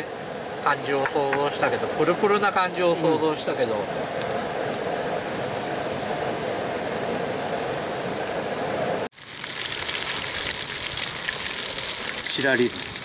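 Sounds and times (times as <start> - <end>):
food deep-frying in oil: 9.1 - 13.0.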